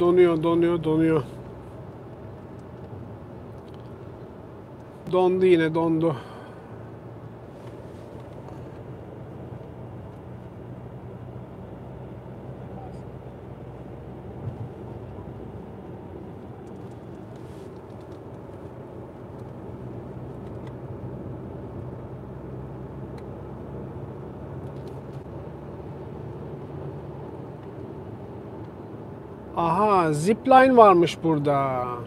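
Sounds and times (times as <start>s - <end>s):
car road and engine noise: 0.0s - 32.0s.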